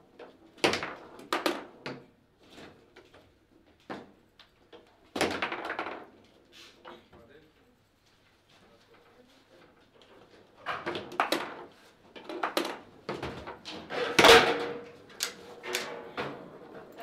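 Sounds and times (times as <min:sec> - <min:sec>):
foosball ball knocking: 0:10.7 - 0:16.8.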